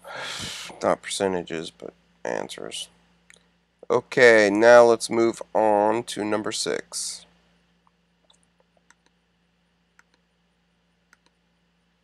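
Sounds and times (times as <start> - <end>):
faint steady hum: 0.0 - 12.0
faint computer mouse clicks: 11.1 - 11.4.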